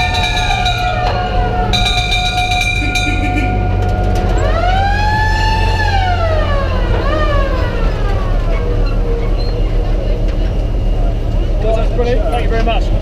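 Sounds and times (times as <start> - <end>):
siren rising and falling: 0.0 - 9.2
fire engine running: 0.0 - 13.0.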